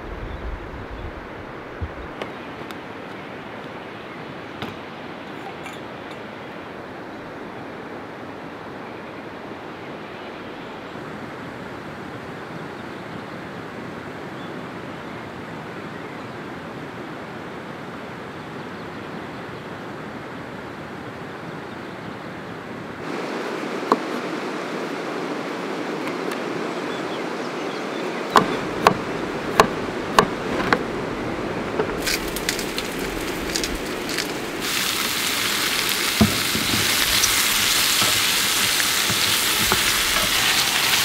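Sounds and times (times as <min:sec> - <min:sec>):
river rushing over stones: 0:23.0 - 0:41.0.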